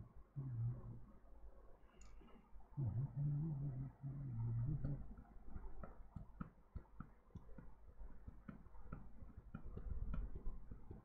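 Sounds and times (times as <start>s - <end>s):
low hum: 0.0s - 11.0s
faint small clicks: 1.8s - 2.6s.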